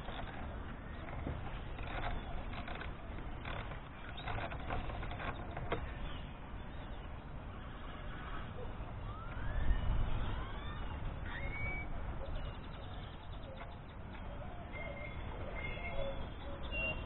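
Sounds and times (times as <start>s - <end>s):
faint rising whistles: 9.0s - 12.3s.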